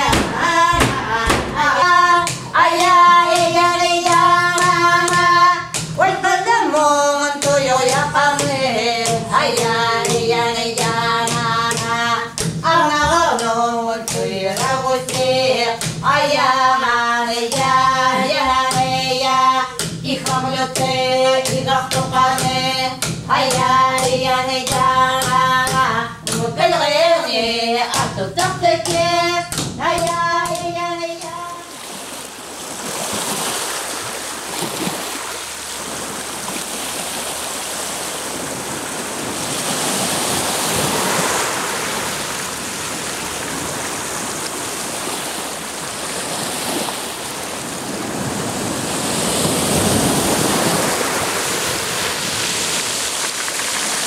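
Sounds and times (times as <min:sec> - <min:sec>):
group chanting: 0:00.0 - 0:05.2
sharp rhythmic drum beats: 0:00.0 - 0:06.2, 0:17.5 - 0:26.9
waves washing over pebbles: 0:31.5 - 0:54.0.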